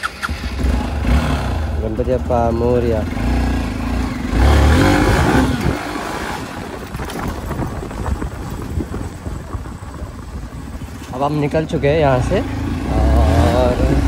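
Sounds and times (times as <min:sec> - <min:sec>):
motorcycle engine accelerating: 0:00.0 - 0:14.0.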